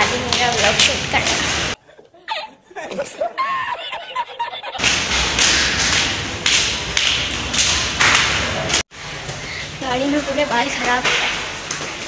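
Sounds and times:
man laughing: 1.8 - 4.8.

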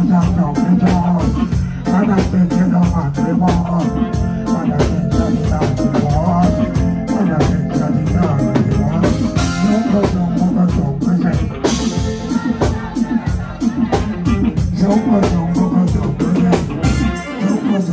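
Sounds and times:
drum kit beating: 0.0 - 17.9
live reggae band: 0.0 - 17.9.

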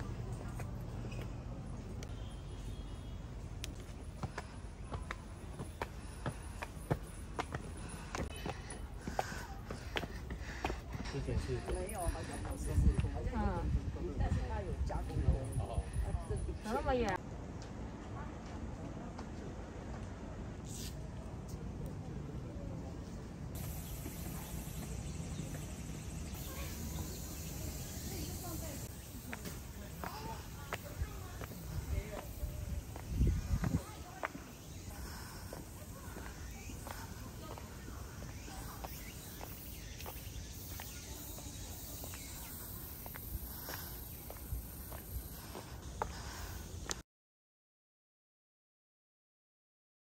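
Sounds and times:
insects trilling: 23.6 - 46.9
wind rumble on microphone: 31.7 - 34.0.

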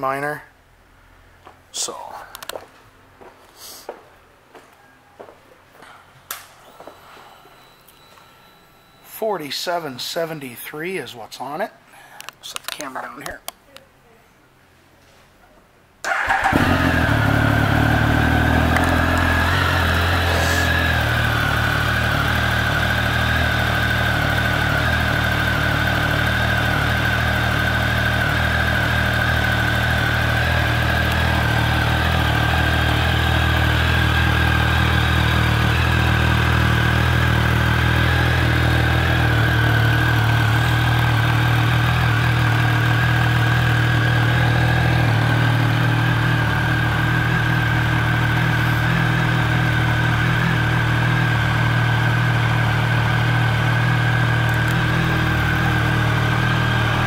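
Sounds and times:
motorcycle engine starting and idling: 16.0 - 57.0
steady high whine: 16.5 - 57.0.

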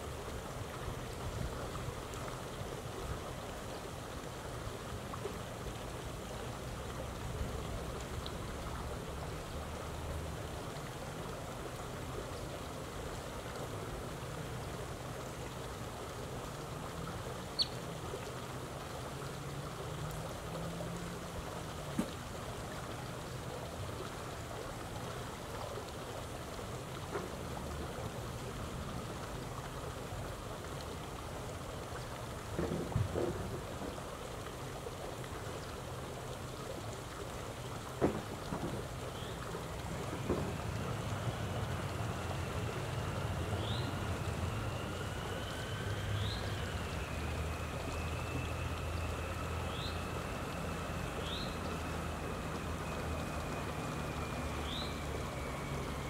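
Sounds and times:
outdoor background hiss: 0.0 - 56.0
low wavering hum: 38.8 - 56.0.

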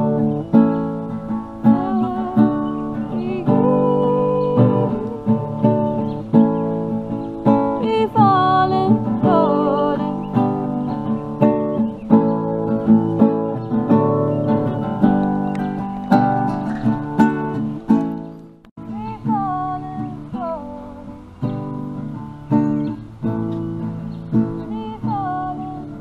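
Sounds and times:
classical guitar strummed chords: 0.0 - 26.0
woman singing: 1.6 - 6.1, 7.6 - 10.8, 18.8 - 21.6, 24.5 - 26.0.

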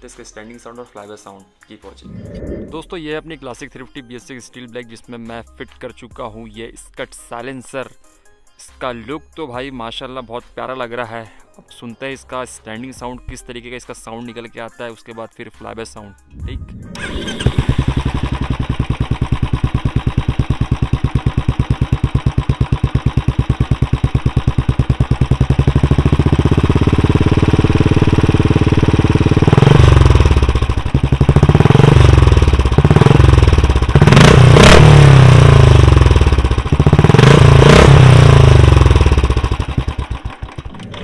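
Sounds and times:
motorcycle engine idling and revving: 16.4 - 41.0.

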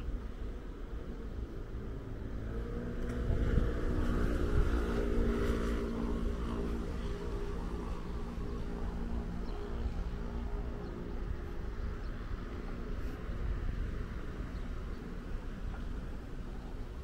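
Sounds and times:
faint engine hum: 0.0 - 17.0
steady low rumble: 0.0 - 17.0.

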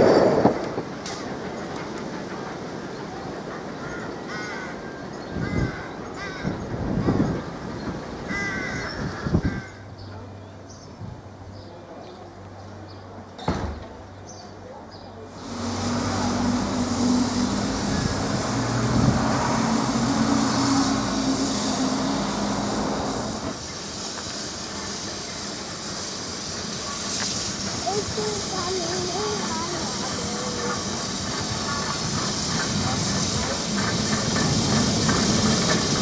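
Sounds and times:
steam hissing from locomotive: 15.2 - 36.0.

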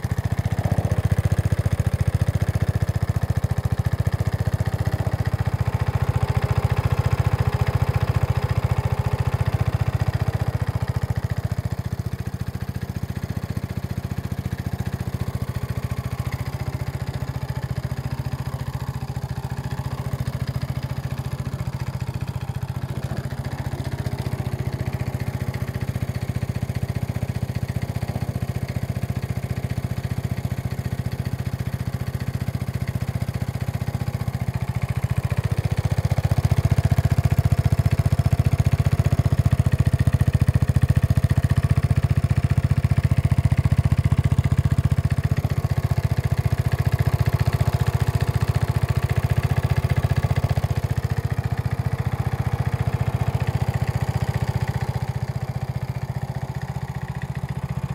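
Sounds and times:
lawn mower engine running: 0.0 - 57.9.

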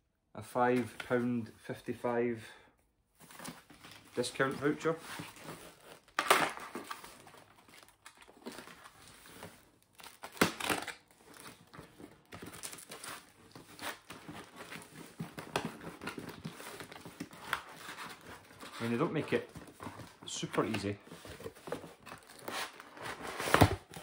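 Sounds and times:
cardboard packaging crinkling: 3.3 - 24.0
cardboard ripping: 4.5 - 11.6, 21.2 - 24.0.

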